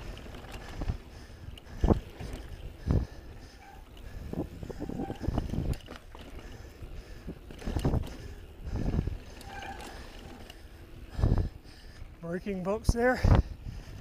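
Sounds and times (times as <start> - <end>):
bike clicks and rattles: 0.0 - 14.0.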